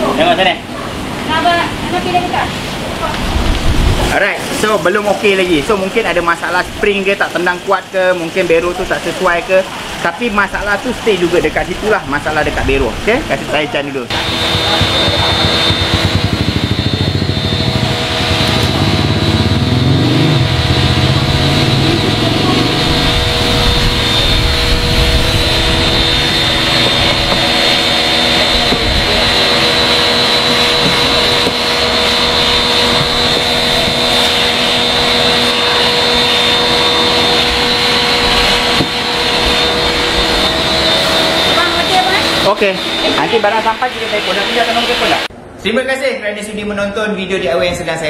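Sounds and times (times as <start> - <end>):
low rumble: 14.1 - 41.6
machine whir with hum tones: 14.1 - 45.6.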